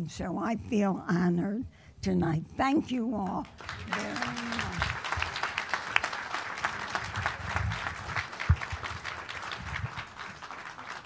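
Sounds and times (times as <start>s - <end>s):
audience applauding: 3.5s - 11.0s.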